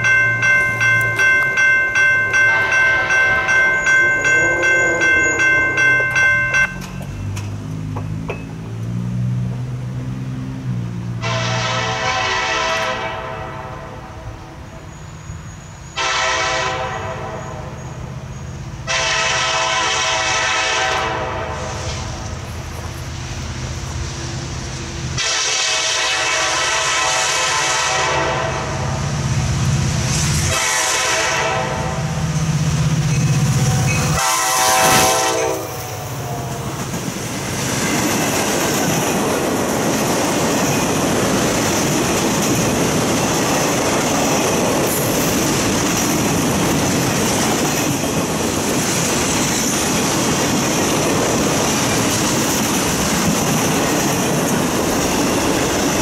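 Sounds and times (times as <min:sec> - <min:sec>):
train wheel clatter: 0:00.0 - 0:09.0, 0:34.9 - 0:56.0
locomotive horn blasts: 0:02.3 - 0:06.3, 0:11.2 - 0:14.6, 0:16.0 - 0:17.8, 0:18.8 - 0:22.2, 0:25.2 - 0:28.9, 0:30.5 - 0:32.2, 0:33.6 - 0:36.8
locomotive engine rumble: 0:17.9 - 0:25.3.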